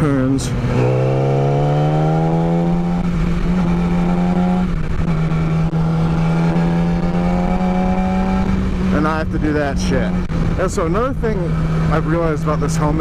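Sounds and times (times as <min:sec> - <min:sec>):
motorcycle engine accelerating: 0:00.0 - 0:13.0
wind noise on microphone: 0:00.5 - 0:12.3.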